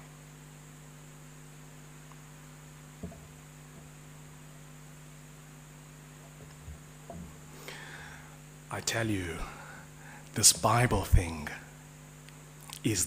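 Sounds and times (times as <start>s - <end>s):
electrical mains hum: 0.0s - 13.0s
faint short knock: 3.0s - 3.3s.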